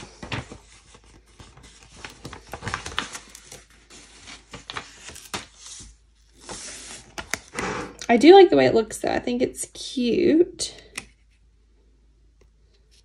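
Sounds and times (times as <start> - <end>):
sticker sheet rustling: 0.0 - 7.6.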